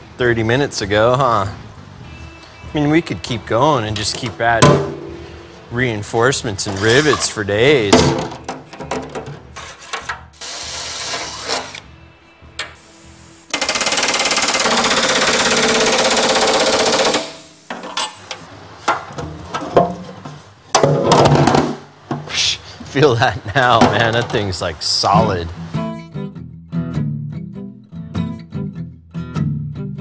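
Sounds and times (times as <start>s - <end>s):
pneumatic rivet gun hammering: 12.6s - 12.9s, 13.5s - 18.4s.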